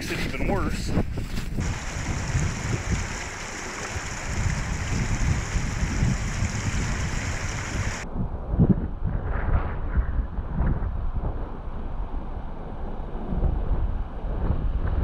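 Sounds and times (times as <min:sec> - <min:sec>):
wind buffeting microphone: 0:00.0 - 0:15.0
creek water running: 0:01.6 - 0:08.0.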